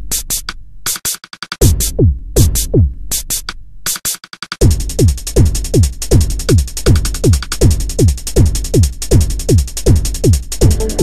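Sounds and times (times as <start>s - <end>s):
fast hi-hats: 0.0s - 11.0s
hi-hat and clap hits: 0.0s - 11.0s
deep kick drums: 1.6s - 3.0s, 4.6s - 11.0s.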